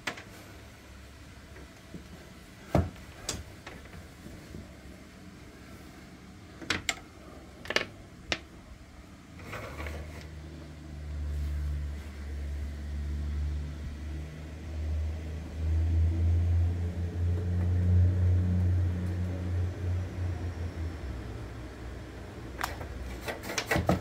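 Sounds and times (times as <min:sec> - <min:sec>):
low engine-like hum: 0:08.6 - 0:23.3.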